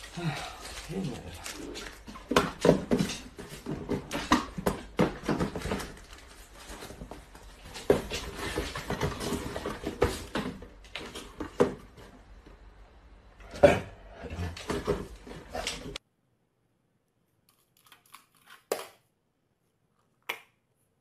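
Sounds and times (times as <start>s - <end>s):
cardboard boxes knocking on tiles: 1.8s - 12.1s.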